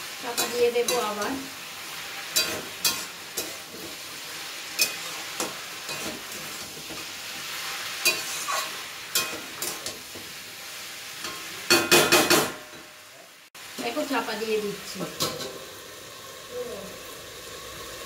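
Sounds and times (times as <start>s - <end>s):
food sizzling in a wok: 0.0s - 18.0s
metal spatula scraping a pan: 0.2s - 10.4s.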